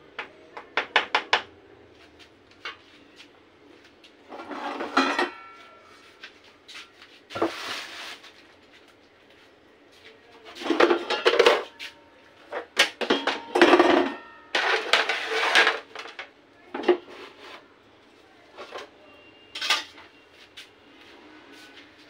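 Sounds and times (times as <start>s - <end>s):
dishes and utensils clattering: 4.3s - 5.9s, 10.6s - 11.9s, 12.5s - 17.4s, 19.5s - 20.1s.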